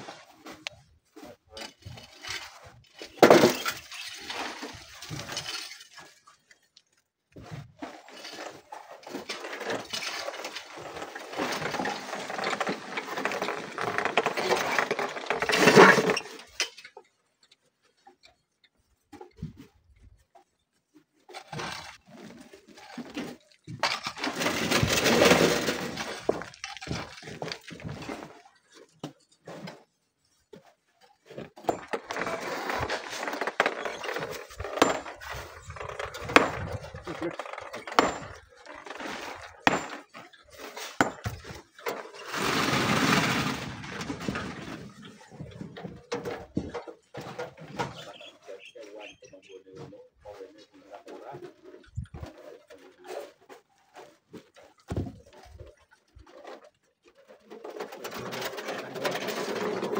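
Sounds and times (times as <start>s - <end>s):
shovels scraping through gravel: 7.9s - 16.4s, 21.5s - 28.4s, 31.4s - 45.1s
stones clattering: 23.7s - 28.1s, 31.6s - 44.2s.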